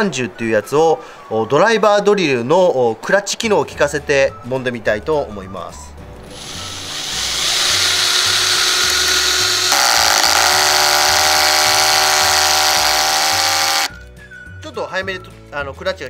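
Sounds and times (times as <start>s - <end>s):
background music: 0.0s - 16.0s
drill clutch buzzing rattle: 6.2s - 13.9s
cordless drill driving screw: 6.3s - 13.9s.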